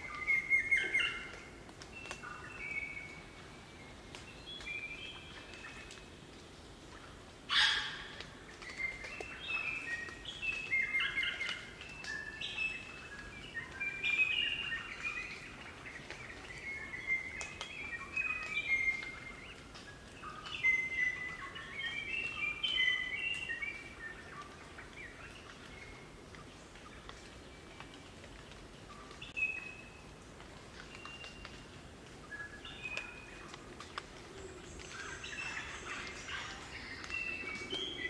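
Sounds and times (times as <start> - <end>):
birds whistling and chattering: 7.5 - 25.9, 32.2 - 38.0.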